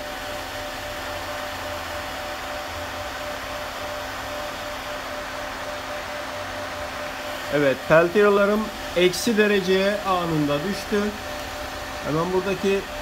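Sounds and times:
cooling fans whirring: 0.0 - 13.0.

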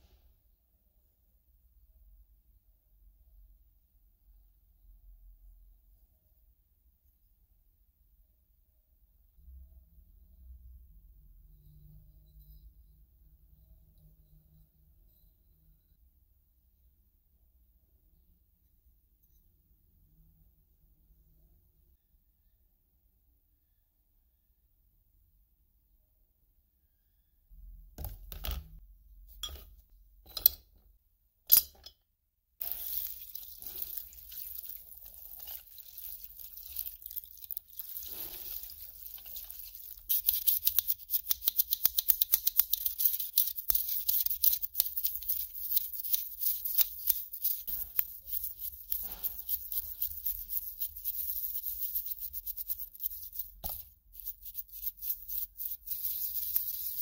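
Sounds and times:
scratchy scrubbing: 32.6 - 57.0.

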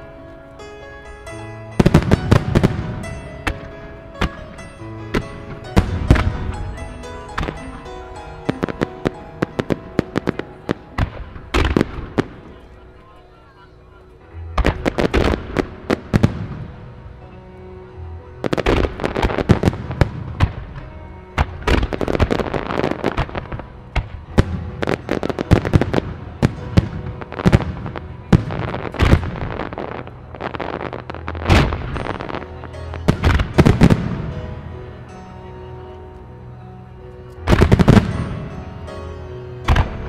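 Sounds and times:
fireworks booming and crackling: 1.8 - 12.8, 14.6 - 16.8, 18.4 - 34.6, 37.5 - 38.8, 39.7 - 40.0.

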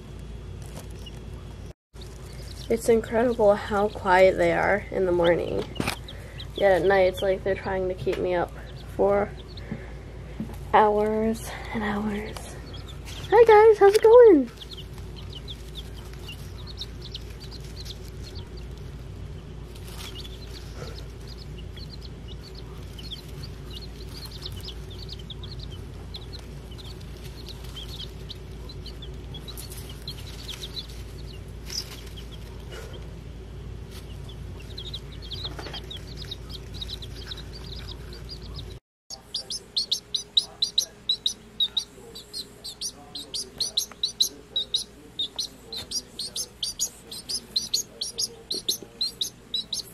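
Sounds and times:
steady low hum: 0.0 - 49.9
chicks peeping: 0.6 - 33.1, 33.8 - 49.9.

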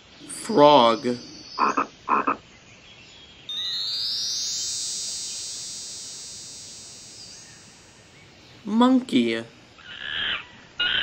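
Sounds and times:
frog croak: 0.9 - 2.4, 9.8 - 11.0
bright synthesizer note: 3.5 - 8.4.

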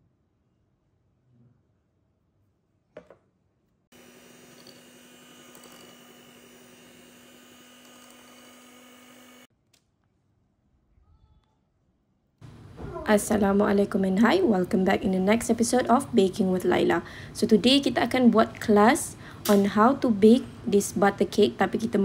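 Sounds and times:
electric hand mixer running: 3.9 - 9.5.

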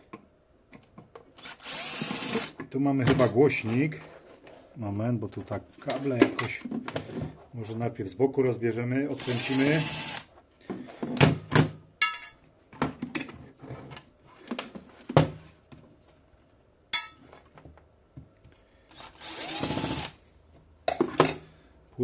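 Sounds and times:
cordless drill whirring: 1.4 - 2.6, 9.2 - 10.3, 19.0 - 20.2.

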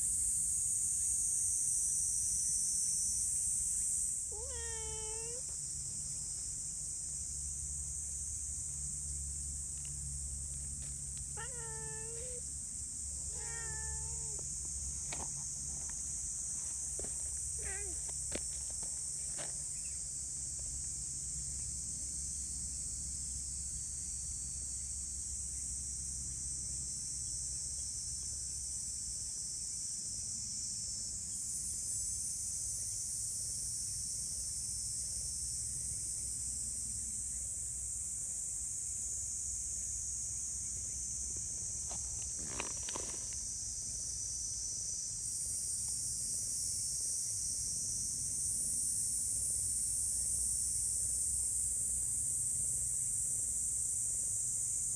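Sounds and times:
high-pitched insect drone: 0.0 - 5.6, 10.8 - 20.0
cat meowing: 4.3 - 5.5, 11.4 - 12.4, 13.2 - 14.5, 17.6 - 18.0.

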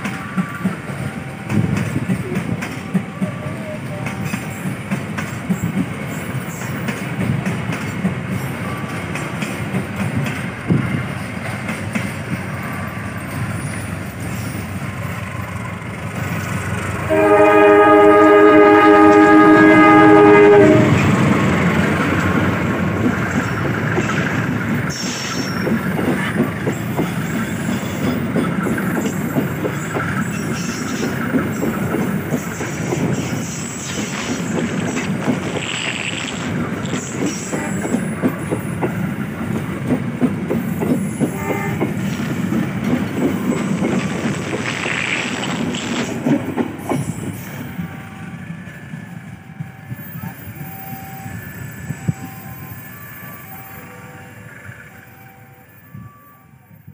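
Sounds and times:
train rumble and wheel clatter: 0.0 - 56.9
locomotive air horn blast: 17.1 - 21.1, 41.3 - 41.8.

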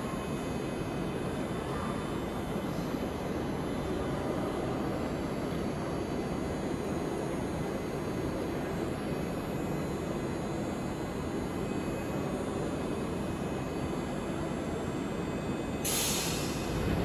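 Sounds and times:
short sharp hiss: 15.9 - 16.6
low rumble of background noise: 16.4 - 17.0.

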